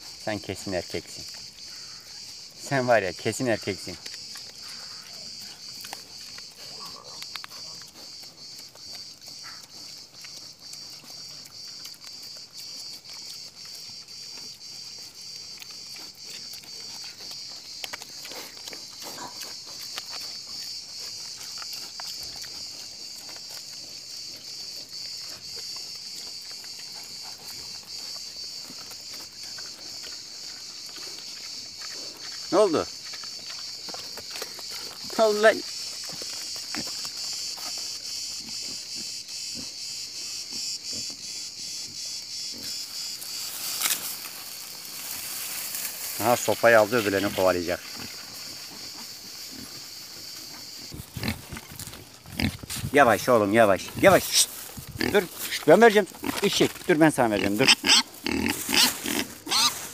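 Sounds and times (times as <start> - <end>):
insects chirring: 0.0 - 59.9
wild boar rooting and feeding: 0.0 - 59.9.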